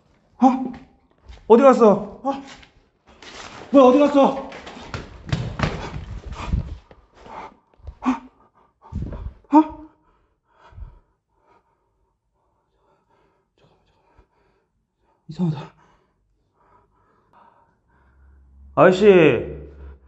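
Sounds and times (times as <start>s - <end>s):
rustling handling noise: 2.5s - 7.4s
man breathing hard: 5.6s - 18.7s.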